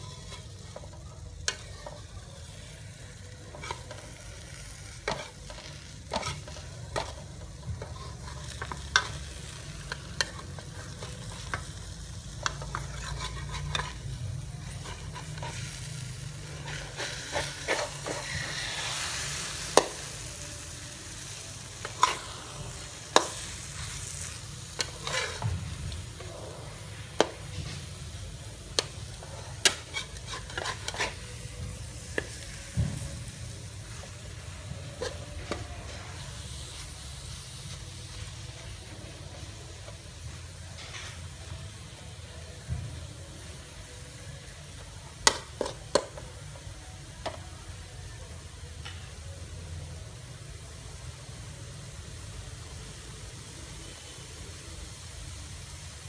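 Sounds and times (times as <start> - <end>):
food sizzling in a wok: 0.0 - 56.0
metal spatula scraping a pan: 3.4 - 11.6, 12.3 - 19.9, 21.2 - 27.9, 28.8 - 32.6.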